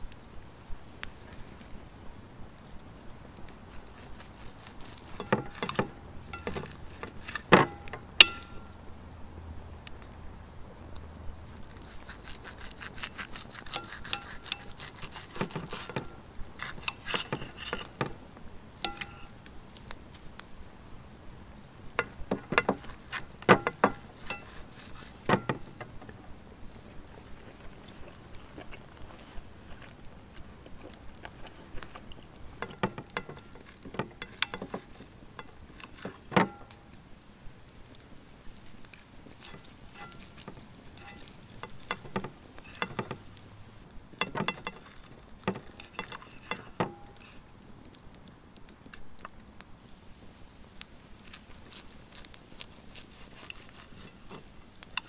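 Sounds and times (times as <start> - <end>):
knife and fork scraping plate: 4.1 - 8.6, 12.2 - 18.2, 18.9 - 19.3, 22.0 - 25.7, 34.2 - 36.7, 39.4 - 43.2, 44.2 - 47.4, 52.7 - 54.4.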